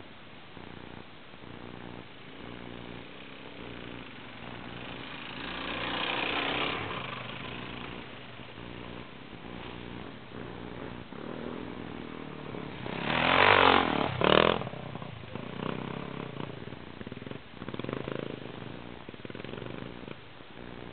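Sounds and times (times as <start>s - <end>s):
dirt bike engines revving: 0.6s - 20.9s.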